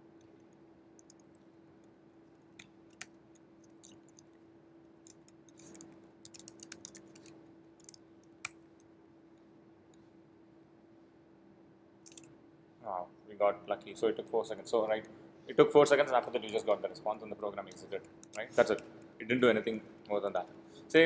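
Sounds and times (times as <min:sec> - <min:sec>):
faint steady hum: 0:00.0 - 0:21.0
keyboard keys clicking: 0:05.1 - 0:08.6.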